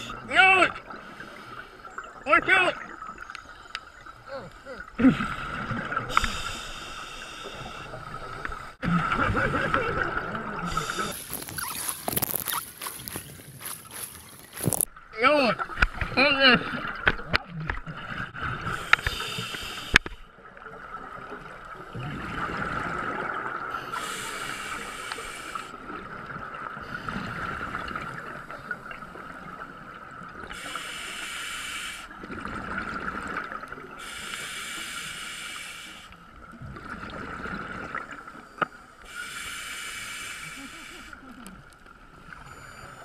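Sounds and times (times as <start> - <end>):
hissing regulator inhalations: 6.1 - 8.8, 10.7 - 12.1, 18.6 - 20.2, 23.8 - 25.8, 30.5 - 32.2, 34.0 - 36.2, 39.1 - 41.2.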